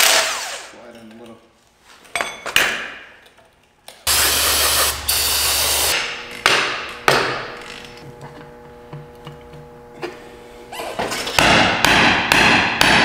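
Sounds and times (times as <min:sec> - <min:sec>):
power tool running: 0:00.0 - 0:00.7, 0:04.1 - 0:11.4
hammer striking metal: 0:11.4 - 0:13.0.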